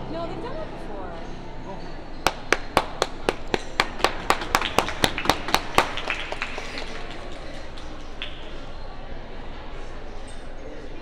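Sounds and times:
hands clapping in applause: 0:02.2 - 0:08.8.

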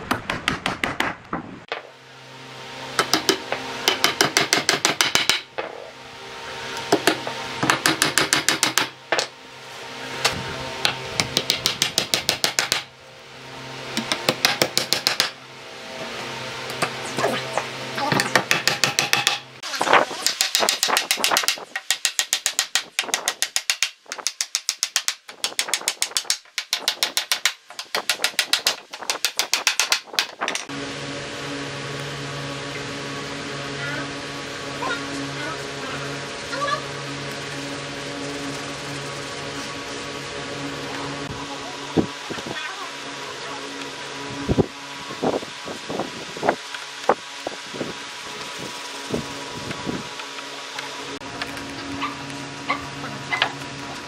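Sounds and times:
steady hum: 0:00.0 - 0:24.2, 0:25.2 - 0:54.0
hammer striking nails into wood: 0:00.1 - 0:01.8, 0:03.0 - 0:05.5, 0:06.9 - 0:09.3, 0:10.8 - 0:12.9, 0:14.0 - 0:15.4, 0:18.2 - 0:19.4, 0:20.2 - 0:30.6.

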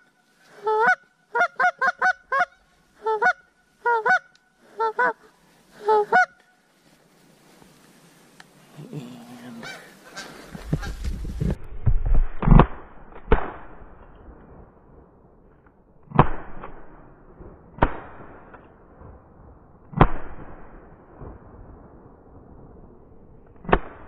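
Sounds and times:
geese honking: 0:00.6 - 0:06.5, 0:09.2 - 0:11.0
shotgun blasts: 0:12.3 - 0:14.0, 0:17.7 - 0:19.1, 0:19.9 - 0:21.4.

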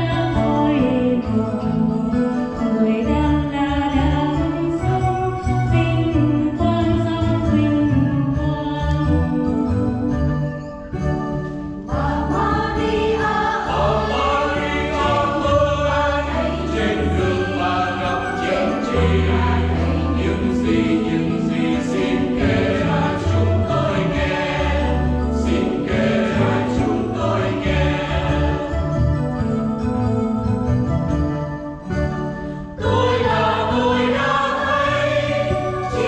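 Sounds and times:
guitar: 0:00.0 - 0:36.0
keyboard: 0:00.0 - 0:36.0
sustained bass notes: 0:03.1 - 0:36.0
mixed choir singing a hymn: 0:11.9 - 0:29.0, 0:32.8 - 0:36.0.

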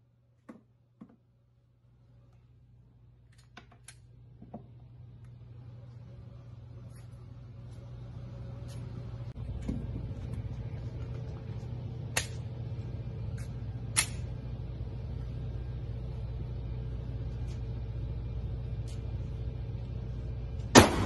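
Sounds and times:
ventilation hum: 0:00.0 - 0:21.0
gunshot cracks: 0:20.7 - 0:21.0.

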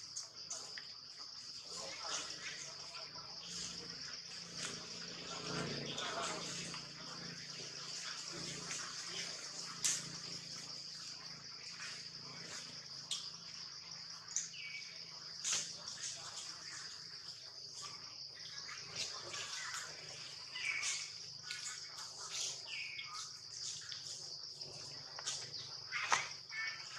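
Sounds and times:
insects droning: 0:00.0 - 0:26.9
bird chirps: 0:14.2 - 0:26.9.

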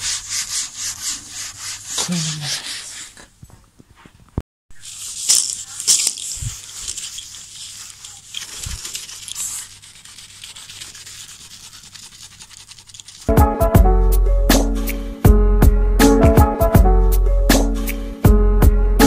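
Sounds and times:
rubbing and scuffing: 0:00.0 - 0:13.4
music: 0:13.3 - 0:19.0.

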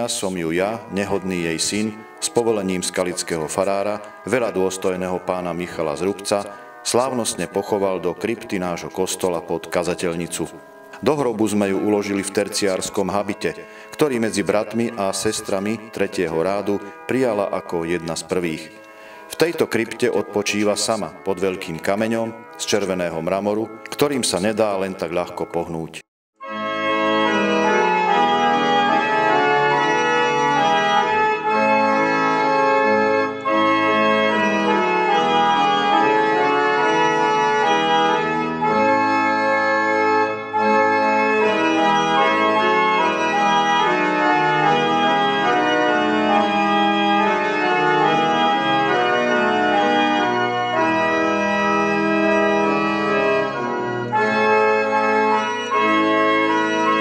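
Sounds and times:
pipe organ playing: 0:00.0 - 0:57.0.

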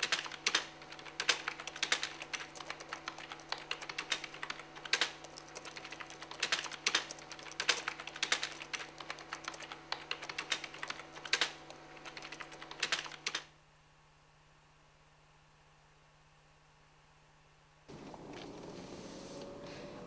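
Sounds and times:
typing on computer keyboard: 0:00.0 - 0:13.5.

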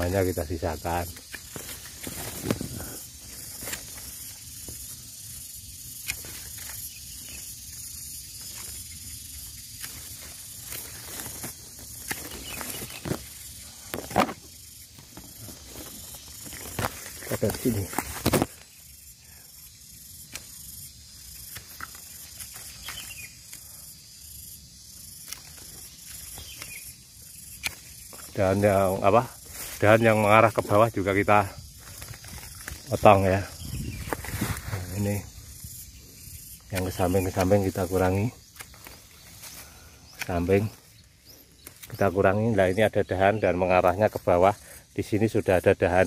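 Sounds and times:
leaves and twigs rustling: 0:00.0 - 0:46.0
pruning shears snipping twigs: 0:01.1 - 0:04.8, 0:06.0 - 0:06.9, 0:09.6 - 0:14.4, 0:20.2 - 0:20.6, 0:25.2 - 0:26.9, 0:27.5 - 0:28.6, 0:36.6 - 0:40.7, 0:41.6 - 0:42.1.

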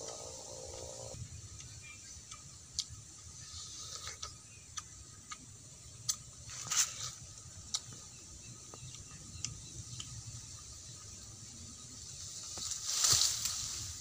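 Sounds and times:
wet chewing clicks: 0:03.8 - 0:06.3.

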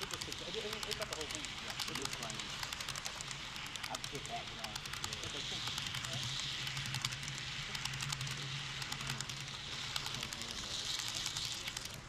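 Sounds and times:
model train wheels clicking: 0:00.0 - 0:12.0.

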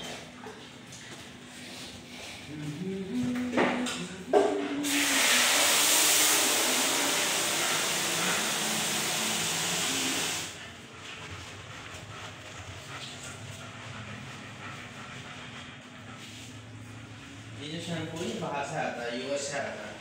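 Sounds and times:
shower spraying water: 0:04.8 - 0:10.6.

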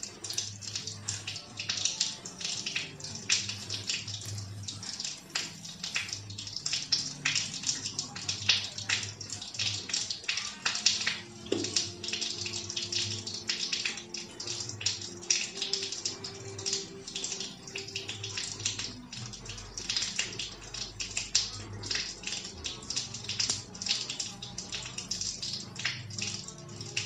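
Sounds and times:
television speech: 0:00.0 - 0:14.8
television music: 0:00.0 - 0:27.0.

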